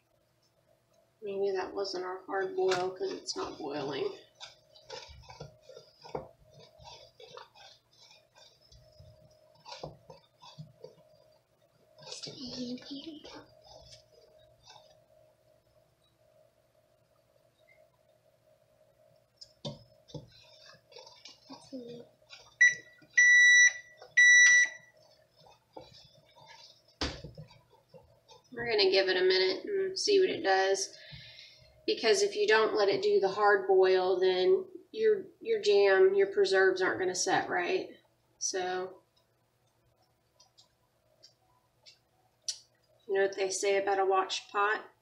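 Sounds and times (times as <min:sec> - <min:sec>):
wooden spoon scraping a pot: 0:02.8 - 0:15.1, 0:20.0 - 0:23.3, 0:24.1 - 0:28.9.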